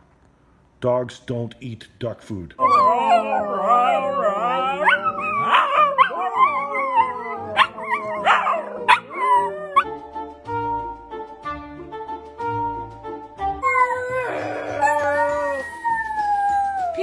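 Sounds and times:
dog howling and whining: 0:02.6 - 0:10.0, 0:13.6 - 0:17.0
background music: 0:02.6 - 0:17.0.

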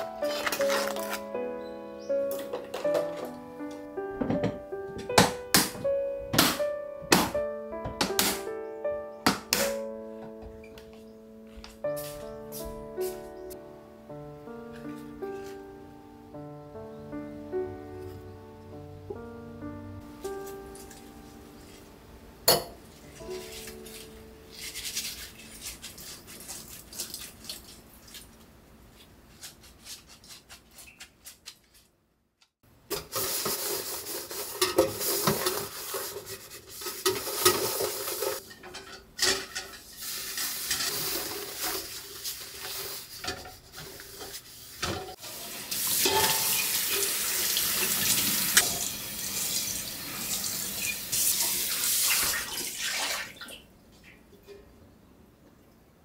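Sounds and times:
pot being scrubbed: 0:23.1 - 0:28.2, 0:29.3 - 0:31.5, 0:32.9 - 0:48.9
metal clanks against sink: 0:36.9 - 0:39.8, 0:46.0 - 0:47.1
tap water running into sink: 0:45.2 - 0:53.6.

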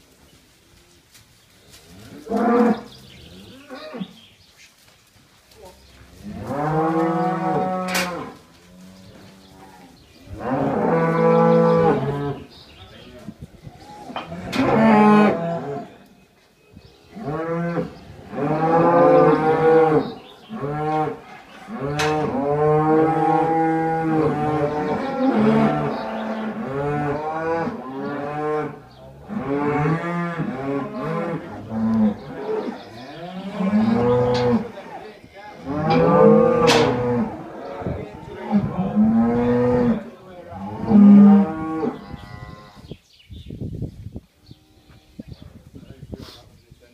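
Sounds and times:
cattle mooing: 0:06.2 - 0:12.5, 0:17.3 - 0:34.8, 0:35.6 - 0:40.0.

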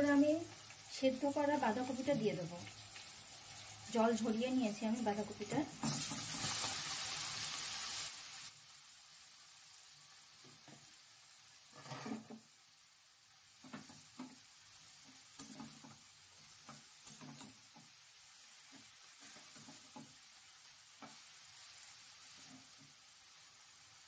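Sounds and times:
cabbage sizzling in oil: 0:00.0 - 0:24.0
spatula scraping and knocking pan: 0:11.7 - 0:12.5, 0:13.6 - 0:14.4, 0:16.6 - 0:18.0, 0:18.7 - 0:20.2.

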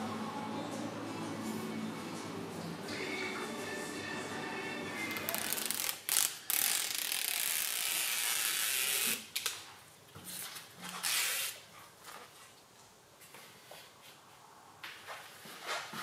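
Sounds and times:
tape liner peeling off: 0:05.1 - 0:09.6, 0:10.8 - 0:11.7.

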